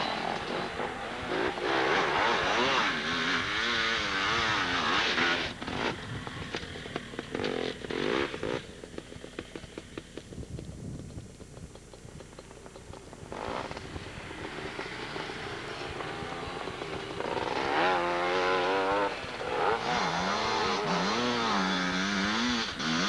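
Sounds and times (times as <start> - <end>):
rapid uneven engine ticks: 5.5 - 17.7
engine revving hard: 16.1 - 23.0.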